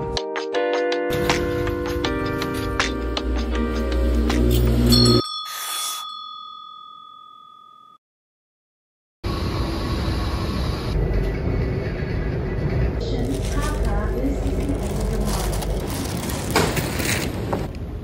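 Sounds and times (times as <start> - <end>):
small bell ding: 4.9 - 8.0
train station hubbub: 9.3 - 18.0.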